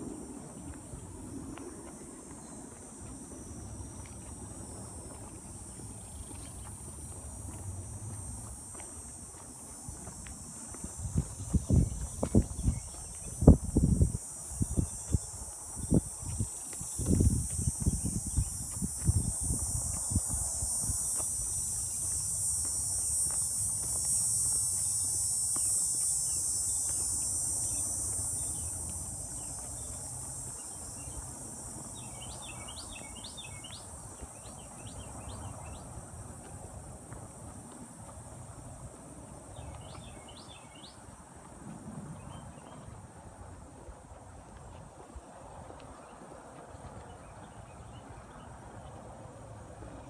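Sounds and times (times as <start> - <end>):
insects buzzing: 0.2 - 41.0.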